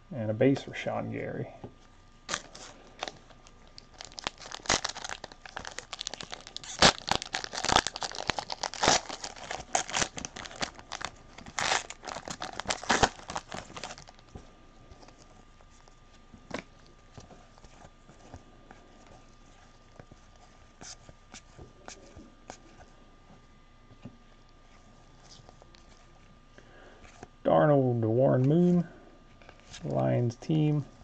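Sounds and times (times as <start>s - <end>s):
foil wrappers tearing and crinkling: 2.3s - 14.4s.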